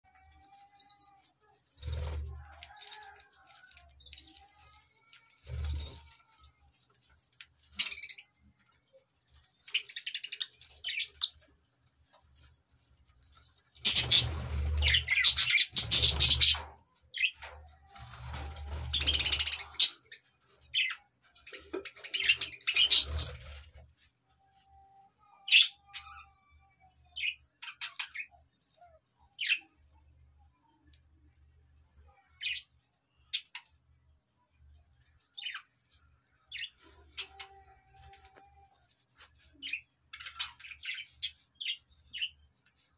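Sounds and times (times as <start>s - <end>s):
budgerigars chirping and chattering: 13.8s - 17.4s, 18.0s - 23.7s.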